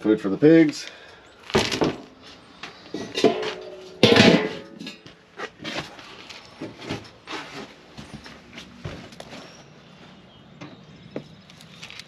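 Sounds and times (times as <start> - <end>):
metal lid clanking: 3.0 - 5.0.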